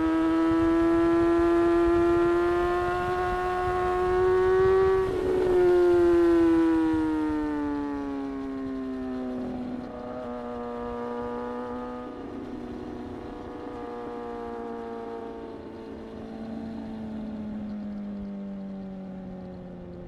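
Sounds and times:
motorcycle engine revs falling: 0.0 - 20.0
wind rush: 2.0 - 8.8.

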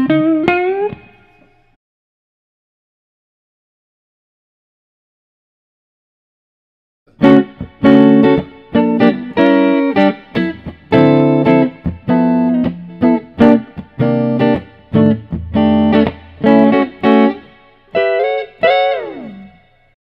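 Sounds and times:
electric guitar chord stabs: 7.1 - 20.0.

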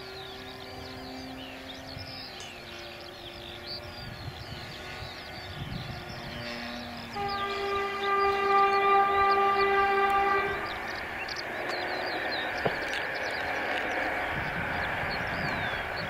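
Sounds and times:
model plane engine running: 0.0 - 12.2.

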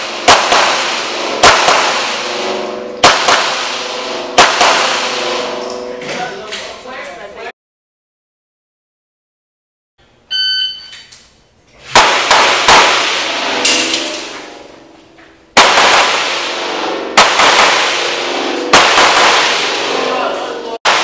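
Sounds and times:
handgun shots echoing indoors: 0.2 - 5.8, 11.9 - 14.5, 15.5 - 20.1
shot timer beep: 10.3 - 11.0.

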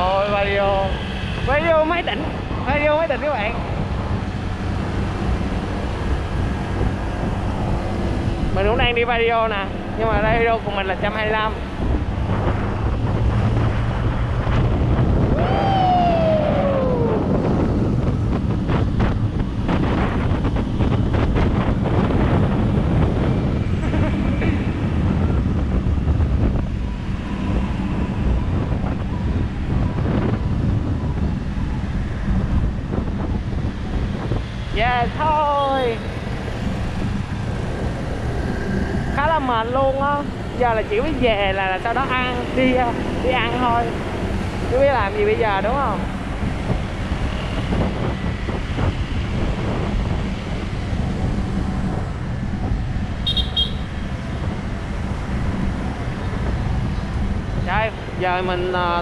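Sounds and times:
motor scooter rumbling: 0.0 - 59.0
tyres on road: 0.0 - 59.0
wind buffeting microphone: 0.0 - 59.0
short high beeps: 53.3 - 53.8.

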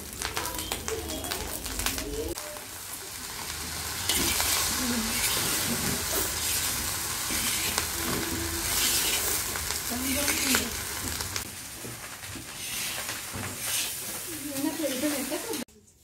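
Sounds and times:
rice sizzling in a pan: 0.0 - 15.7
metal spatula scraping a pan: 3.9 - 15.5.

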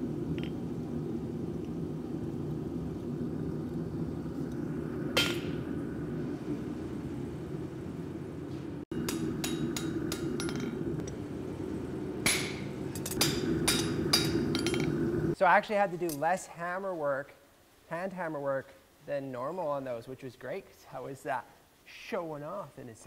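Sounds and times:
steady low drone: 0.0 - 15.4.

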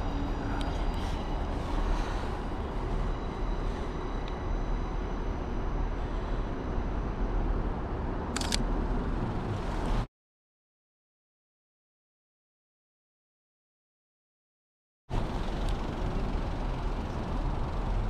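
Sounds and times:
low outdoor rumble: 0.0 - 10.1, 15.1 - 18.0
camera shutter clicking: 8.4 - 8.6.

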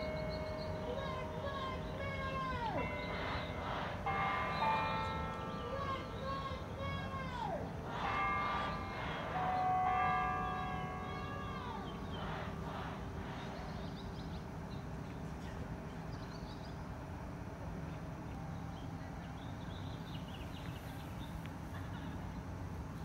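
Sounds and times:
tower bells ringing: 0.0 - 14.8
bird chirps: 0.0 - 15.2
low outdoor hum: 0.0 - 23.0.

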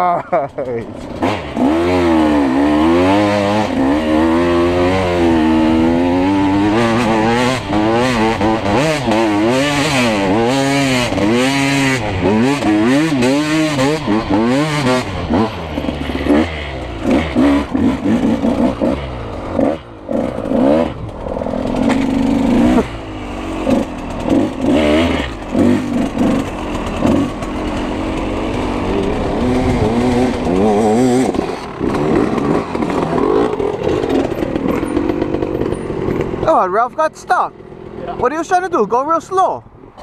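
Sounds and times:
dirt bike engines revving: 0.0 - 40.0.

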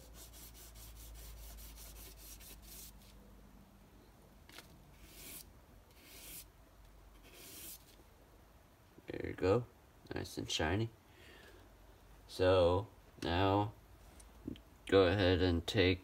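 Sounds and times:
metal scraping on sandpaper: 0.0 - 3.1, 5.0 - 6.5, 7.2 - 7.9.

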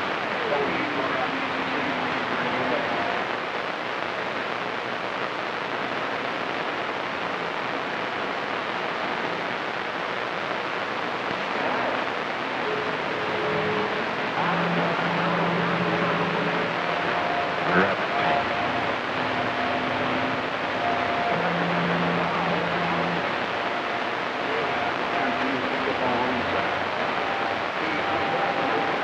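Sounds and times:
faint steady radio tones: 0.0 - 29.0
radio static hiss: 0.0 - 29.0.

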